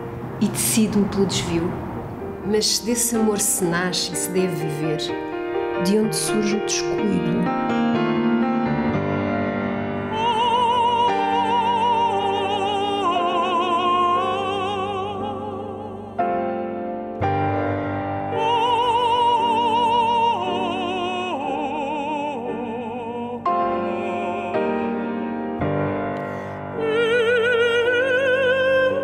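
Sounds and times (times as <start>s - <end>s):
sustained piano chords: 0.0s - 29.0s
operatic voice singing: 5.8s - 7.6s, 10.0s - 16.3s, 18.3s - 25.3s, 26.7s - 29.0s.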